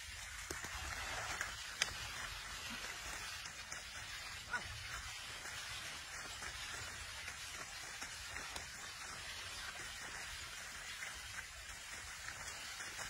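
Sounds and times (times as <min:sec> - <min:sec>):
muddy water splashing: 0:00.0 - 0:13.0.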